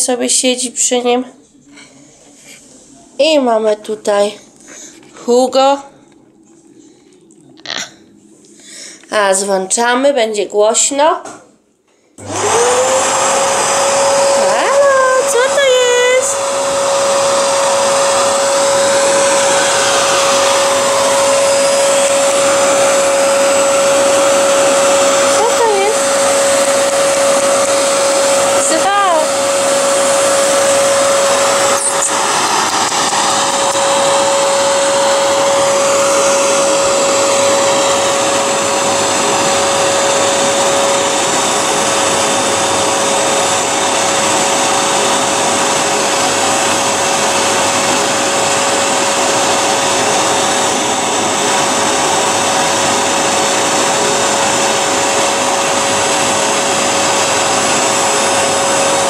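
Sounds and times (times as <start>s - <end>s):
vacuum cleaner running: 12.2s - 59.0s.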